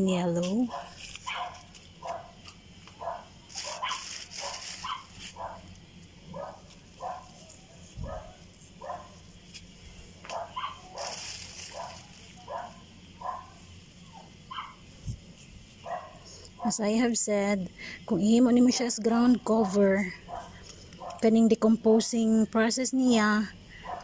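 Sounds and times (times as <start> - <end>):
rustling: 0.6 - 13.6
dog barking: 0.7 - 2.4, 3.0 - 5.7, 6.3 - 9.2, 10.3 - 14.8, 15.8 - 16.8, 19.6 - 21.2.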